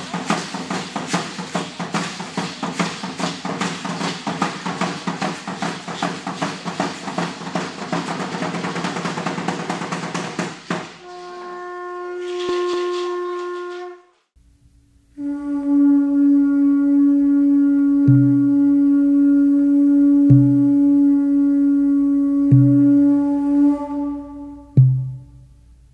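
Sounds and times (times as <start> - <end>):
conch shell trumpet note: 11.0 - 14.2, 15.1 - 25.6.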